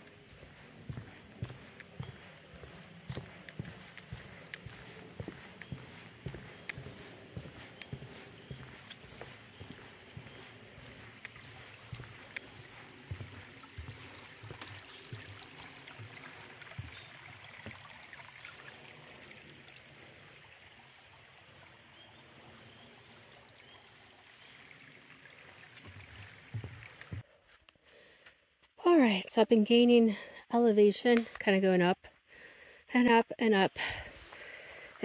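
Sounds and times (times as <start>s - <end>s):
footsteps on wet forest trail: 0.0s - 19.1s, 19.9s - 28.7s, 33.8s - 35.0s.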